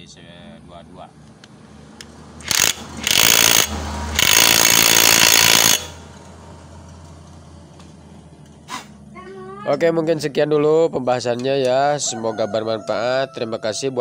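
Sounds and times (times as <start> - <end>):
cordless impact wrench hammering: 2.0 - 6.2.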